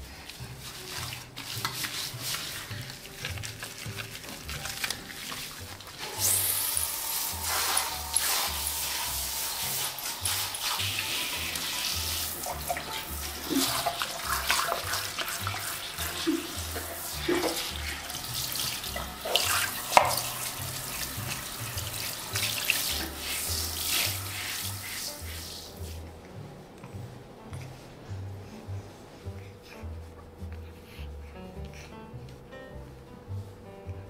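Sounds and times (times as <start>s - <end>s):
soft background music: 0.0s - 34.0s
shower head spraying water: 0.3s - 26.1s
water splashing: 0.6s - 26.0s.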